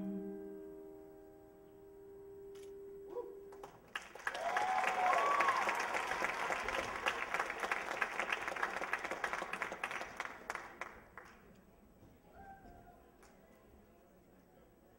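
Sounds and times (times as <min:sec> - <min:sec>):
audience applauding: 0:03.5 - 0:11.5
audience cheering: 0:04.0 - 0:10.6.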